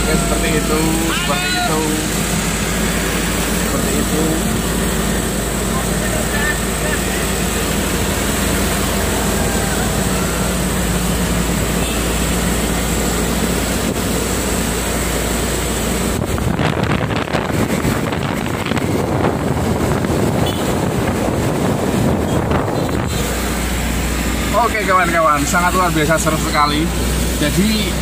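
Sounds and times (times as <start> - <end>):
truck driving rumble: 0.0 - 28.0
wind buffeting microphone: 15.9 - 24.0.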